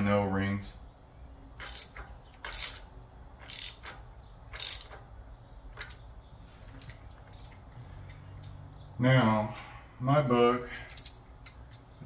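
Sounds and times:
socket ratchet clicking: 1.6 - 5.1.

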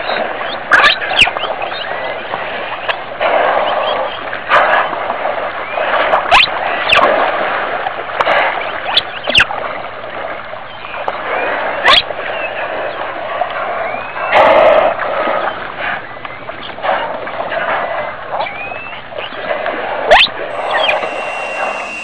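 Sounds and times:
whale whistled calls: 18.4 - 19.1, 20.1 - 22.0
whales blowing: 20.5 - 22.0.

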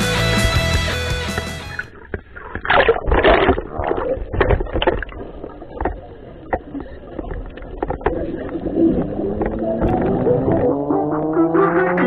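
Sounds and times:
rock music: 0.0 - 1.9
water sloshing and bubbling: 1.4 - 10.9
air bubbles streaming: 1.8 - 11.3.

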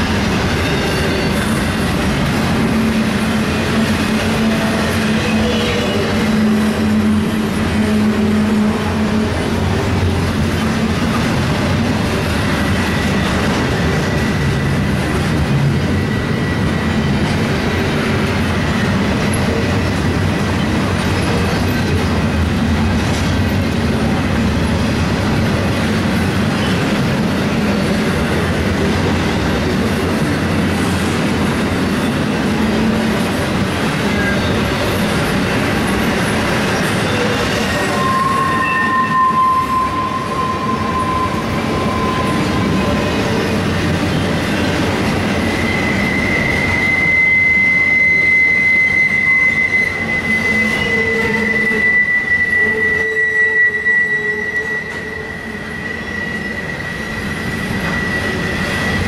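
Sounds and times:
freight train rumbling on rails: 0.0 - 59.0
wheel squeal: 0.2 - 2.3, 33.2 - 59.0.

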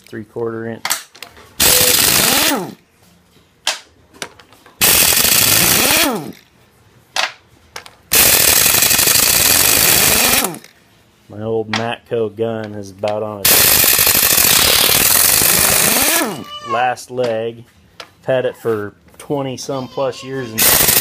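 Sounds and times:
air impact wrench hammering: 1.6 - 2.8, 4.8 - 6.4, 8.1 - 10.7, 13.4 - 16.6, 20.6 - 21.0.

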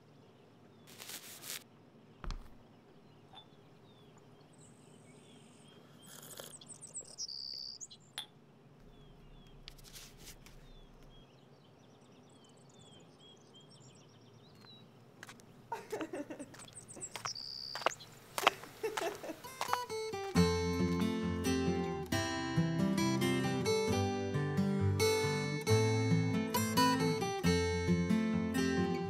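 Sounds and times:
small birds chirping: 0.0 - 20.4.

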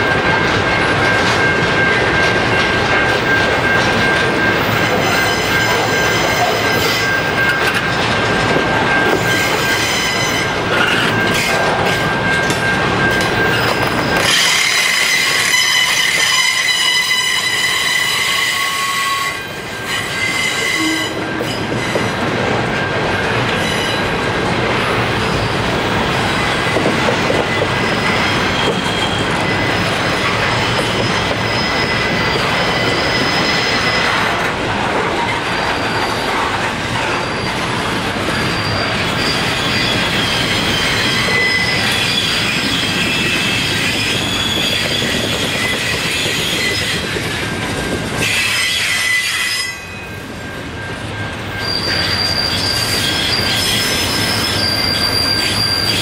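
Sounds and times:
train wheels rolling on track: 0.0 - 56.0
wheels squealing: 24.9 - 34.4, 35.2 - 47.3, 50.8 - 56.0.

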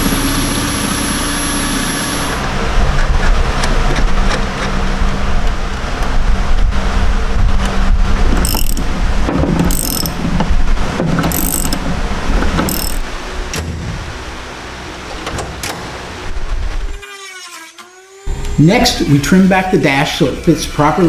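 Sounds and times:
steady low hum: 0.0 - 17.0
ratchet wrench clicking: 8.4 - 8.9, 9.7 - 10.2, 11.3 - 11.8, 12.7 - 13.0.

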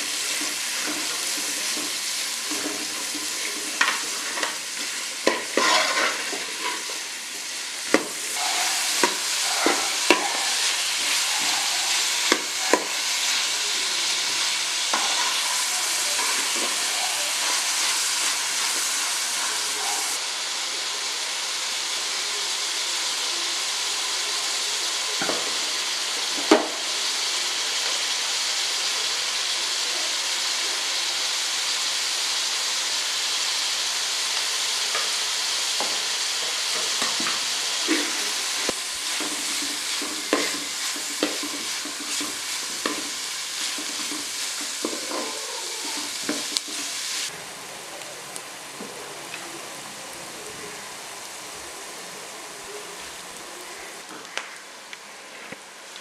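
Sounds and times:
vegetables sizzling in a pot: 0.0 - 56.0
ladle scraping a pot: 0.1 - 7.0.

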